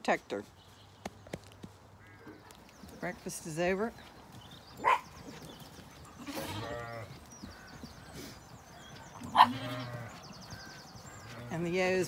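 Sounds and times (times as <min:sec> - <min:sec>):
sheep bleating: 0:06.1 - 0:07.2, 0:09.2 - 0:10.3.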